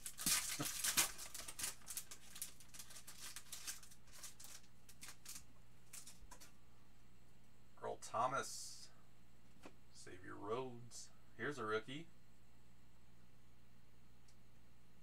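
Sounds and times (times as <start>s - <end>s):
foil wrapper crackling: 0.0s - 6.5s.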